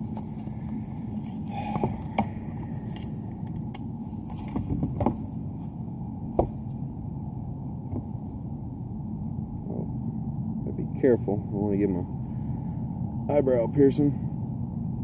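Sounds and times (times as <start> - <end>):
low rumble: 0.0 - 15.0.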